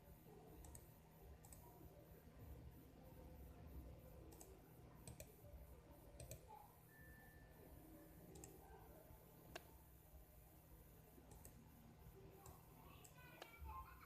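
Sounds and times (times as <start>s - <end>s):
faint clicks: 0.6s - 1.6s, 4.3s - 5.3s, 8.3s - 8.6s, 9.5s - 9.7s, 11.3s - 11.6s, 12.4s - 13.6s.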